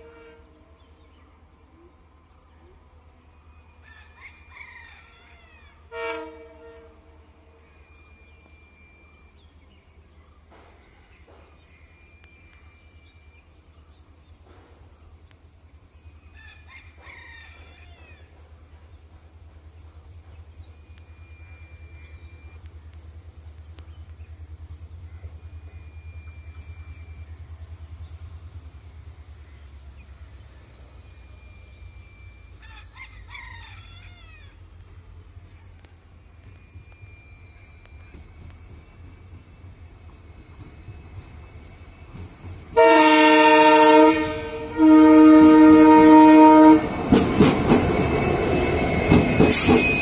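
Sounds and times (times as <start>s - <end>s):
distant diesel locomotive rumble: 0.0s - 50.0s
rooster crowing: 3.8s - 6.1s, 16.4s - 18.3s, 32.6s - 34.6s.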